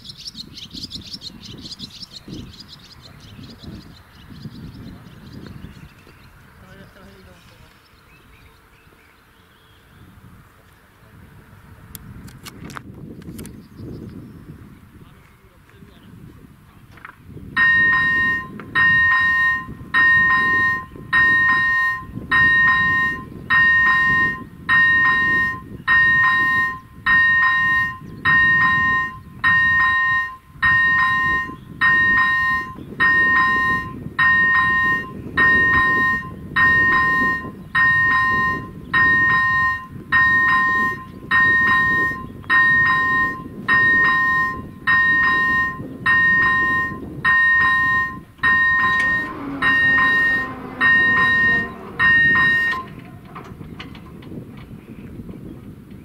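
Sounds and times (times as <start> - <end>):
level-crossing bell ringing: 17.6 - 52.9.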